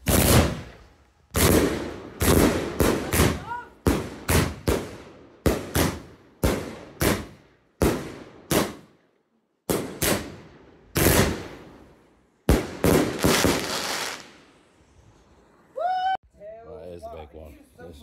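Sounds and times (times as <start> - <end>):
fireworks bursting bangs: 0.0 - 9.0, 9.7 - 14.7.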